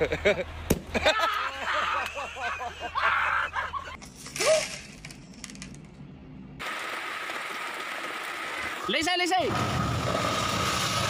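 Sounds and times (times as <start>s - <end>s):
person laughing: 0.0s - 4.0s.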